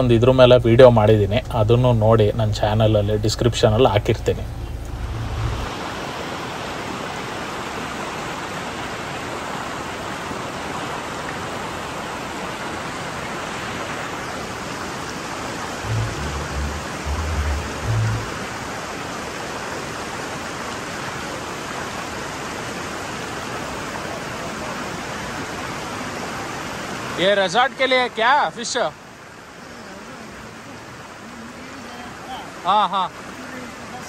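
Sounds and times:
flowing river water: 0.0 - 34.0
low thumps: 0.7 - 5.7, 15.8 - 18.5.

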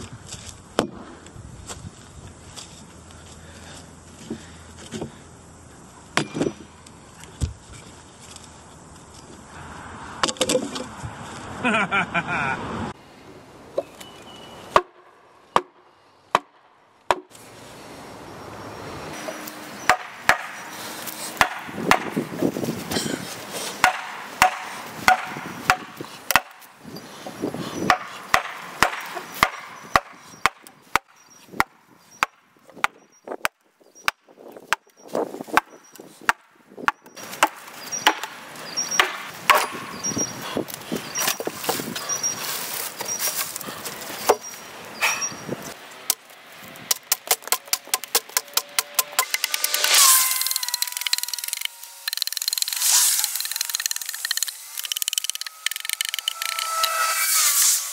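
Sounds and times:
mallet striking steel blade: 21.4 - 22.2, 23.8 - 26.6, 47.1 - 57.9.

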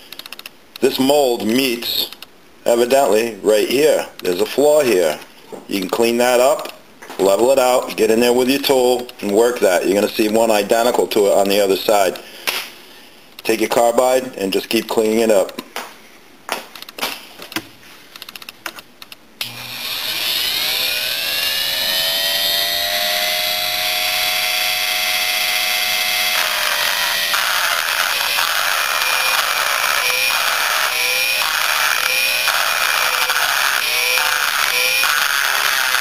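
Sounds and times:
rotary tool grinding metal: 19.4 - 36.0
rotary tool whining: 19.4 - 36.0.

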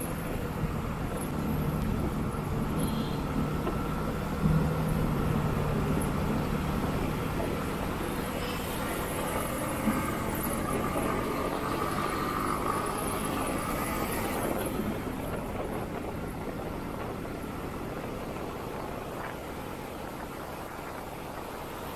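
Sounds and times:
road noise: 0.0 - 21.9
wind noise: 0.0 - 21.9.

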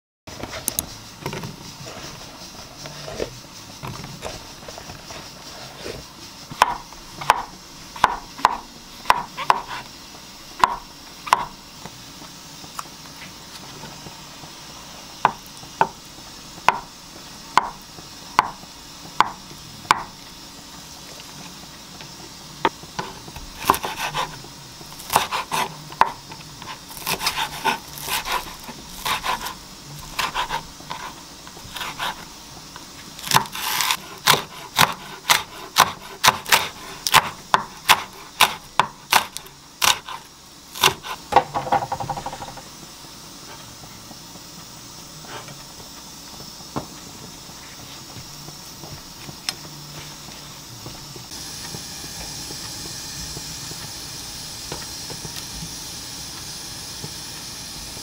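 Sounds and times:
knife chopping on wooden board: 5.9 - 9.8, 10.6 - 11.6, 16.6 - 16.9, 17.5 - 18.6, 19.2 - 20.2, 22.7 - 24.4, 25.0 - 32.2, 33.2 - 40.2, 40.8 - 42.6.

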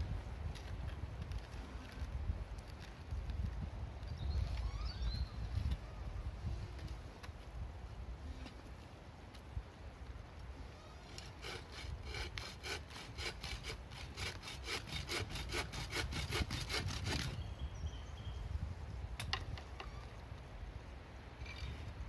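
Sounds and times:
hand saw cutting wood: 11.1 - 17.4.

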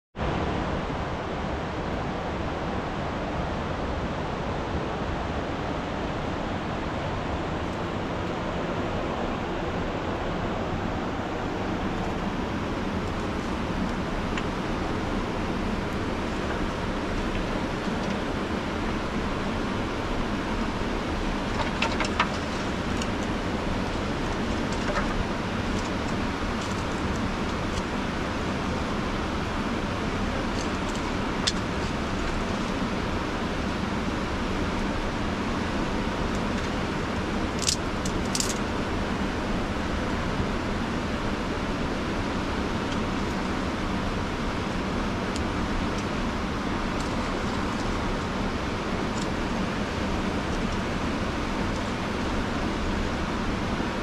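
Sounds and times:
steady rushing noise: 0.2 - 54.0
kindling clicks and snaps: 37.6 - 38.6.

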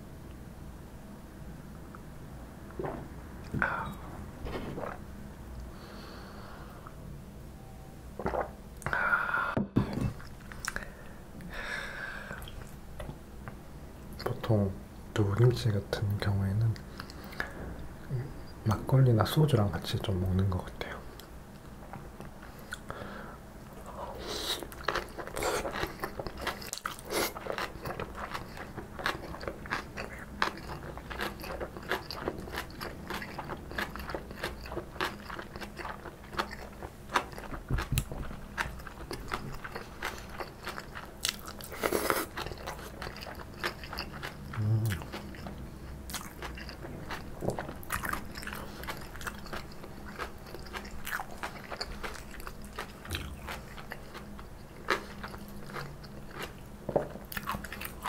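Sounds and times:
wet mouth sounds: 4.6 - 5.0, 8.2 - 9.0, 9.8 - 10.8
crunchy chewing: 23.7 - 58.0.

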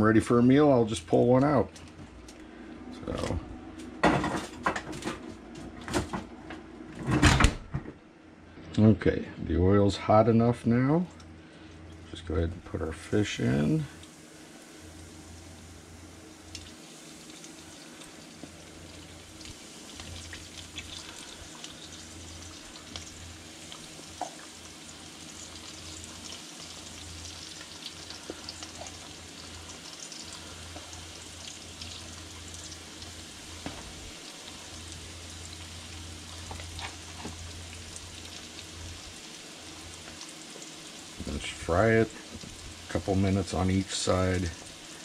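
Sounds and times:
fish sizzling in oil: 13.3 - 45.0.

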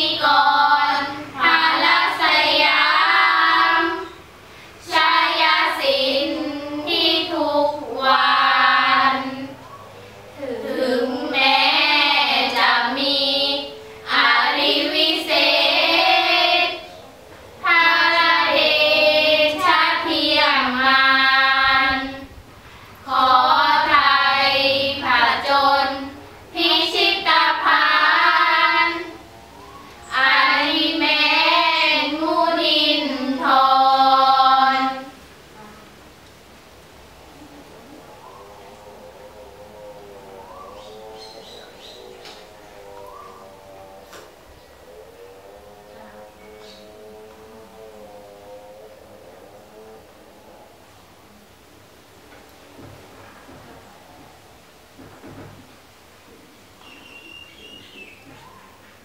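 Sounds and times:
girls chanting in unison: 0.0 - 22.4, 23.0 - 35.8.

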